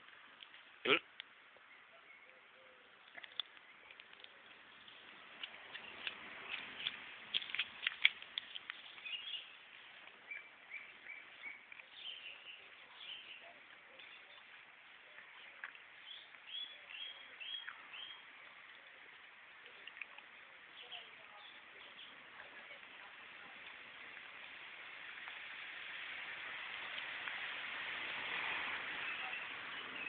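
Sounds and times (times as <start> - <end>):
bird chirping: 1.6 - 7.6, 8.4 - 14.5, 15.1 - 18.3.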